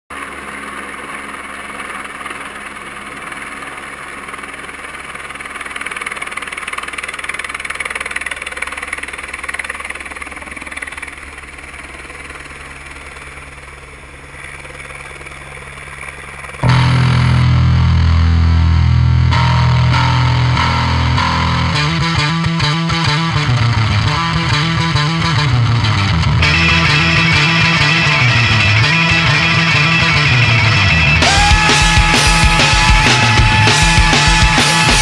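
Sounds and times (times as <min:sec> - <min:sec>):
helicopter rotor and turbine: 0:00.1 - 0:16.7.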